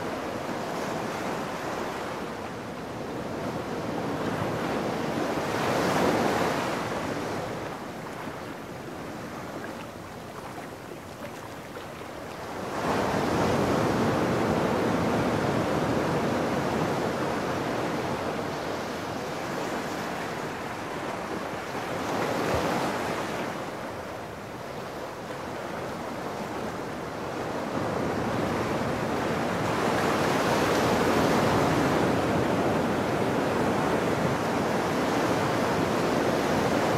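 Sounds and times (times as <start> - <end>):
ocean surf breaking on sand: 0.0 - 23.9.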